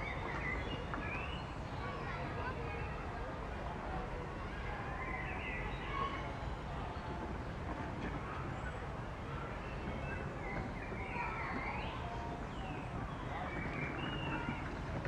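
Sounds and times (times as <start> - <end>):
wind rumble on microphone: 6.2 - 15.0
birds chirping: 9.5 - 15.0.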